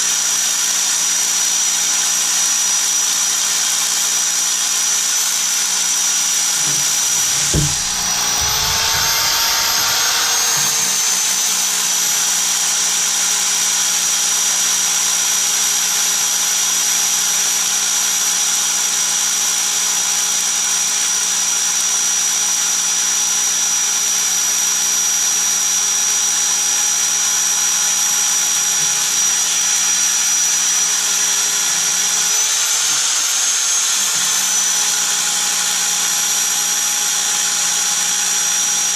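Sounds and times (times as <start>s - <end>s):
hammer drill boring into stone: 6.4s - 13.6s, 29.2s - 38.1s
knock: 6.6s - 11.6s.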